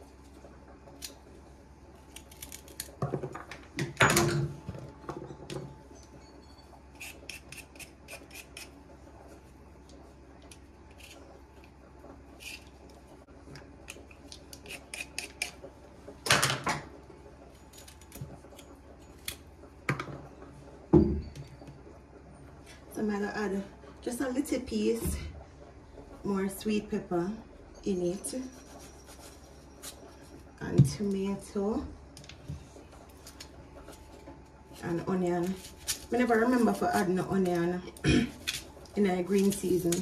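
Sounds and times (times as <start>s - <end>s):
knife scraping carrot: 6.9s - 8.8s, 10.9s - 11.3s, 12.4s - 12.8s, 14.5s - 15.6s, 28.4s - 30.4s.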